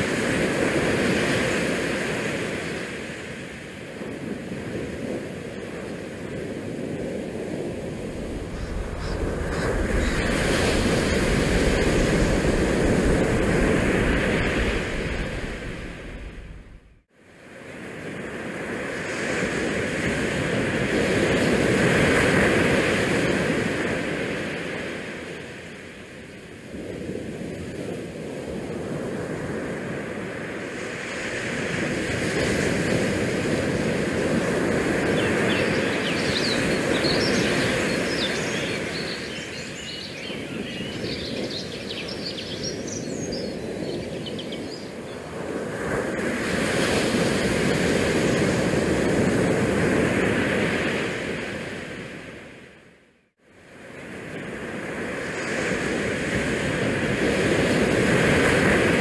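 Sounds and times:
wind on microphone: 0.0 - 17.0, 17.7 - 52.6, 53.7 - 59.0.

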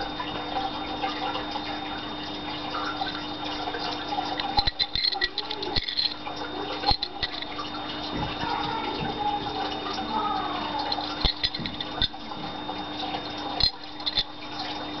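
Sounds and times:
steady hum and hiss: 0.0 - 15.0
dagger handling clicks and knocks: 6.8 - 7.5.

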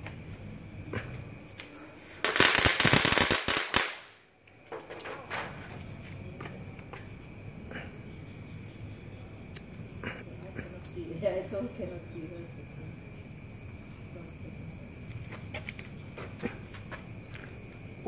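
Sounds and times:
firecrackers crackling: 1.0 - 5.1.

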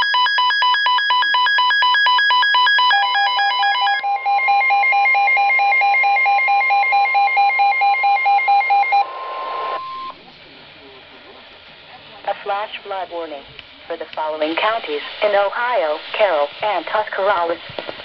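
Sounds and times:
rapid multi-tone alarm beeping: 0.0 - 10.2
steady warning alarm tone: 0.0 - 10.2.

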